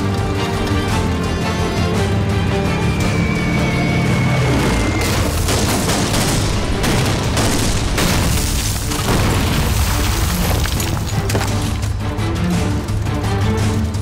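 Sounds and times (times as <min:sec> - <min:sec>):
dramatic music score: 0:00.0 - 0:14.0
bombs exploding: 0:05.0 - 0:10.9.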